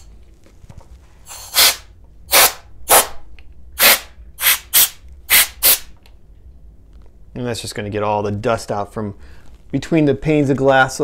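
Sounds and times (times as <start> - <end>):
compressed air duster blasts: 1.2 - 6.0.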